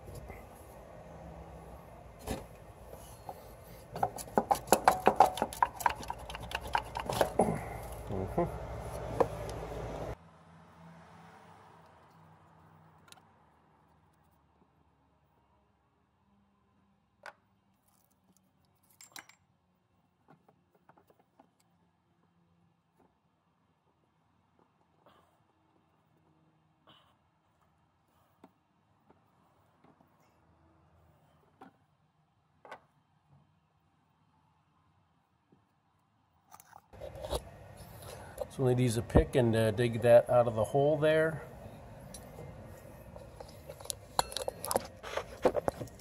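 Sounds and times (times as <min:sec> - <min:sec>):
hands handling plastic part clicking: 0:04.0 - 0:08.0.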